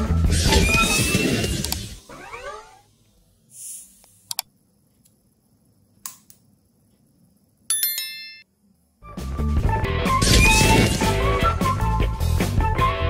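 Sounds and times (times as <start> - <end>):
mouse clicks: 4.0 - 5.2.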